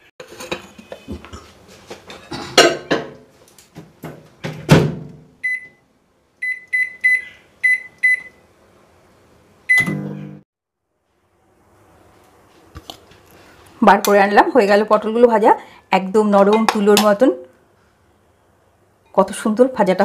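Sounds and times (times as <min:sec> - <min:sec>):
short keypad beeps: 0:06.4 - 0:08.4, 0:09.7 - 0:10.0.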